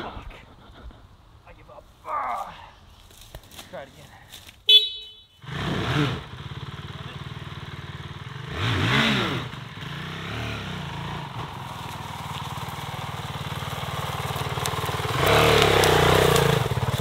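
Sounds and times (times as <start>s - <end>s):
motorcycle engine revving: 5.1s - 17.0s.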